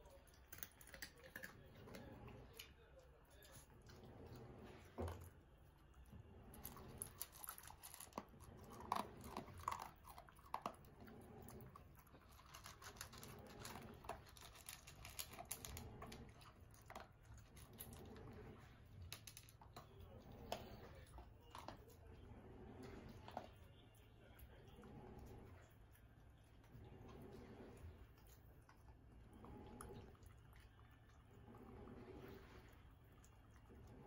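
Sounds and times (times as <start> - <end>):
dogs crunching dry kibble: 6.6 - 10.8, 11.8 - 18.0.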